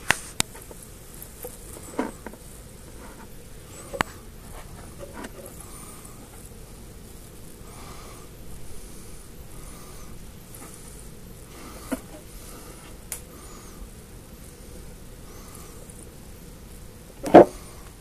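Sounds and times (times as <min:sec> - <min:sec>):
rubbing on camera: 0:00.0 - 0:06.5
steady hiss: 0:00.0 - 0:18.0.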